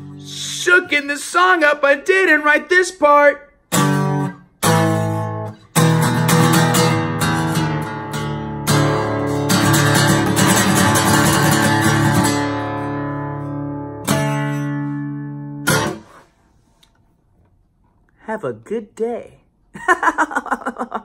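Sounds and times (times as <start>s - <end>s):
acoustic guitar strumming: 0.0s - 16.3s.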